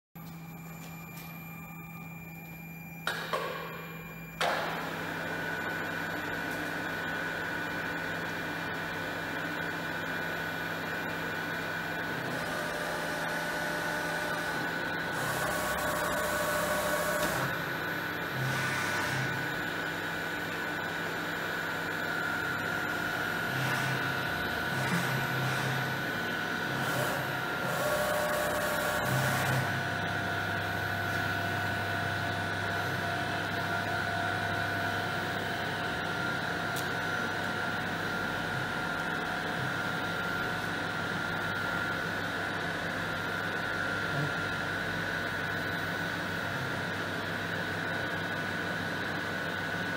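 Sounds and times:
milling machine humming and whining: 0:00.2 - 0:49.9.

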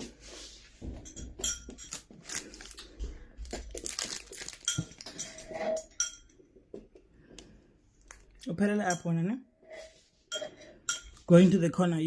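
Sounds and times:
drinking glass clinking: 0:01.0 - 0:02.1, 0:04.7 - 0:06.4, 0:10.3 - 0:11.3.

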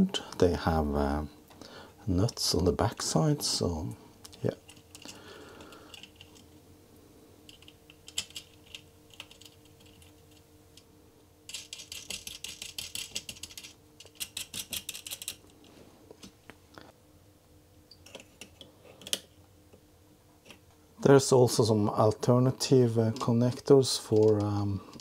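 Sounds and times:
small nuts and washers clicking: 0:07.5 - 0:10.4, 0:11.5 - 0:15.6.

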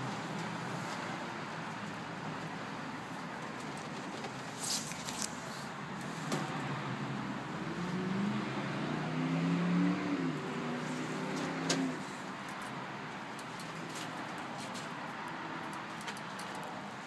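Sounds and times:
car engine passing: 0:06.2 - 0:12.3.

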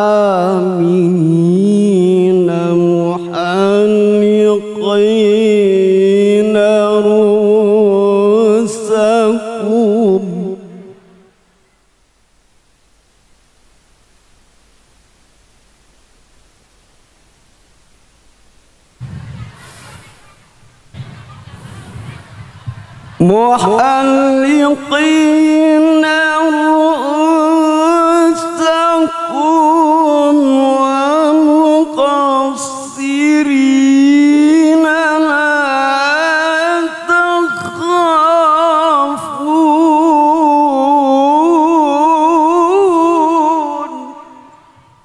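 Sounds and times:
man chanting melodically: 0:00.0 - 0:11.3, 0:23.2 - 0:45.0.

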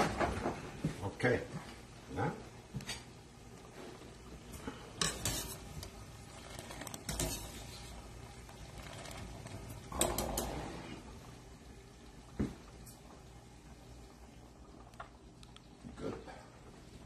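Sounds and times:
boiling water: 0:00.0 - 0:17.0
strainer scraping against metal pot: 0:05.0 - 0:09.7.

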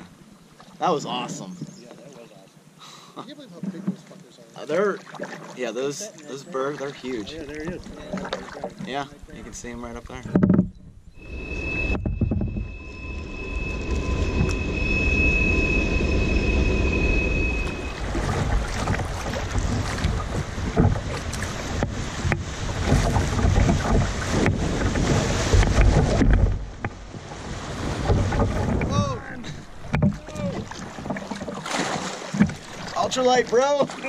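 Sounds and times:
water rushing and splashing: 0:03.4 - 0:10.4, 0:11.1 - 0:34.0
wind buffeting microphone: 0:09.2 - 0:31.4
steady high whine: 0:11.1 - 0:19.6.

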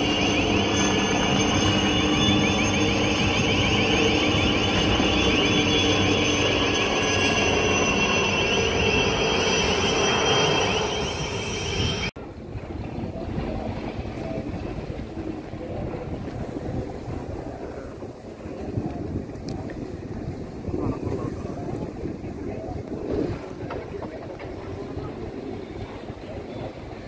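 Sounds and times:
engine drone with whine: 0:00.0 - 0:26.8
wind on microphone: 0:00.0 - 0:27.0
water: 0:12.2 - 0:27.0.

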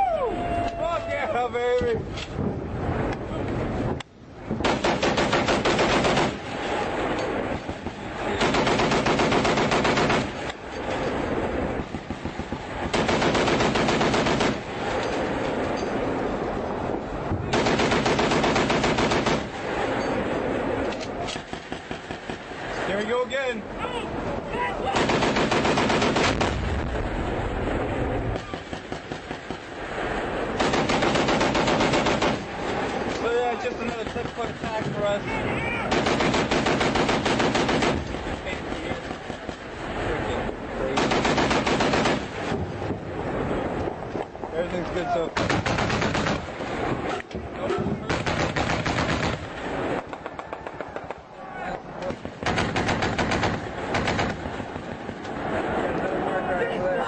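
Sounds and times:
quieter gunfire: 0:04.4 - 0:10.6, 0:11.2 - 0:15.4, 0:17.5 - 0:19.9, 0:24.9 - 0:27.2, 0:28.3 - 0:33.1, 0:35.9 - 0:39.7, 0:40.9 - 0:43.1, 0:45.4 - 0:46.8, 0:48.0 - 0:51.2, 0:52.0 - 0:55.2
machine gun firing bursts: 0:04.6 - 0:06.4, 0:08.4 - 0:10.4, 0:12.0 - 0:14.7, 0:17.5 - 0:19.6, 0:24.9 - 0:26.6, 0:30.6 - 0:32.6, 0:35.9 - 0:38.2, 0:41.0 - 0:42.5, 0:45.4 - 0:46.5, 0:48.1 - 0:49.5, 0:52.2 - 0:54.9.

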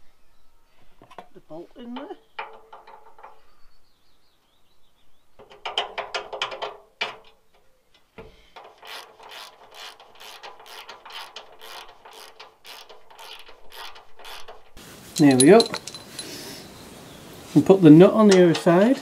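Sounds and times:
ratchet wrench clicking: 0:08.6 - 0:14.8.

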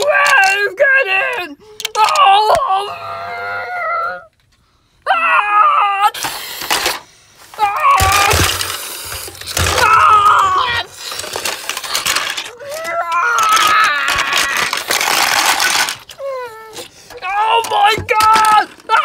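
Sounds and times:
person screaming: 0:00.0 - 0:04.3, 0:05.1 - 0:06.2, 0:07.6 - 0:08.7, 0:09.6 - 0:11.0, 0:12.5 - 0:15.1, 0:15.7 - 0:19.0
plastic toy bricks crashing: 0:06.2 - 0:16.3, 0:17.1 - 0:19.0.

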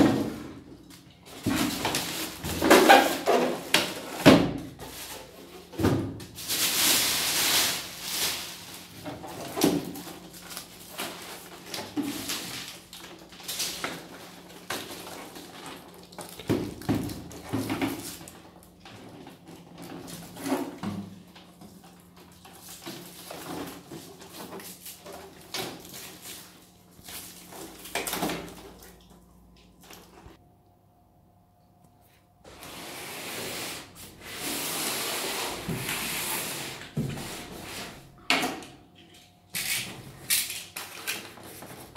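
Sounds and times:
plastic wrapping rustling: 0:00.0 - 0:30.4, 0:40.2 - 0:41.9.

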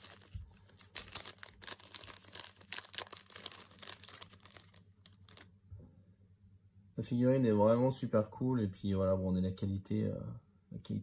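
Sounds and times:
plastic packaging crinkling: 0:00.0 - 0:05.5.

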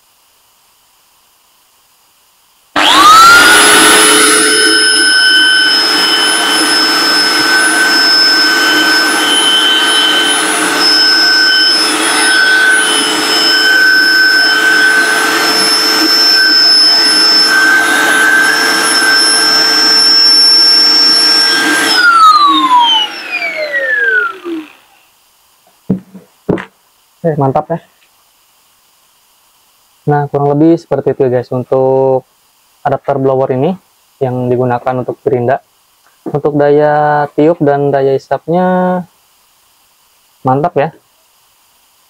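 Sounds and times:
angle grinder blower whining: 0:02.8 - 0:25.0
grinder spinning down: 0:02.8 - 0:25.0.

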